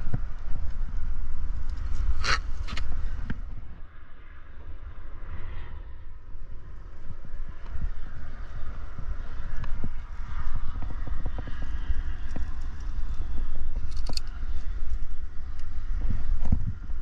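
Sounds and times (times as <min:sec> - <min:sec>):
wind buffeting microphone: 0:00.0 - 0:17.0
climbing gear clicks and scrapes: 0:11.6 - 0:15.7.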